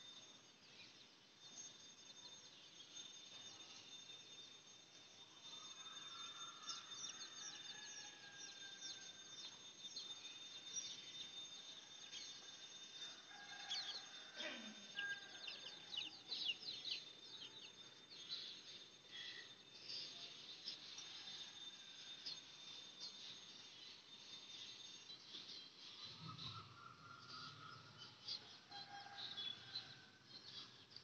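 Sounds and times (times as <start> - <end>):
steady high-pitched tone: 0.0 - 31.0.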